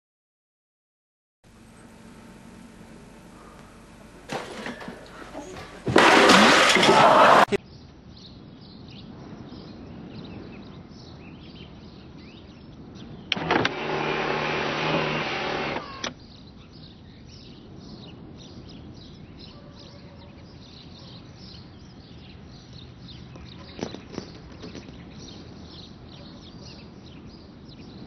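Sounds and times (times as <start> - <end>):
faint birdsong: 1.5 - 5.9, 7.5 - 28.0
car electric window motor: 13.3 - 16.1
window motor click: 13.3 - 16.1.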